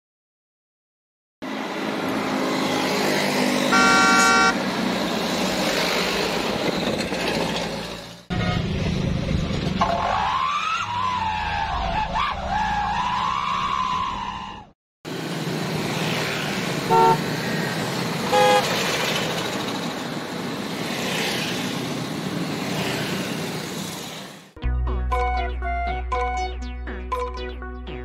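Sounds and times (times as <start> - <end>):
passing vehicles: 1.4 - 24.6
car horn toots: 3.7 - 4.6, 16.9 - 17.2, 18.3 - 18.7.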